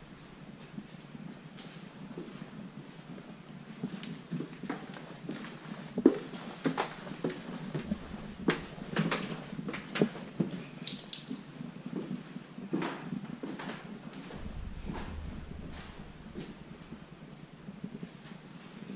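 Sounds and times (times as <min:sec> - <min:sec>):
footsteps on wooden stairs: 0:06.1 - 0:10.6.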